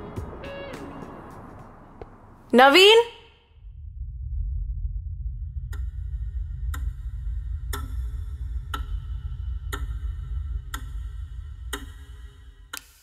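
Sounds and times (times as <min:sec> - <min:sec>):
deep low drone: 0:03.5 - 0:12.8
clock ticking: 0:05.7 - 0:13.0.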